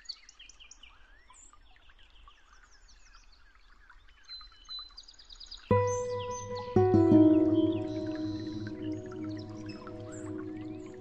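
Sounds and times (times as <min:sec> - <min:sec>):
music with loud held chord: 0:05.7 - 0:11.0.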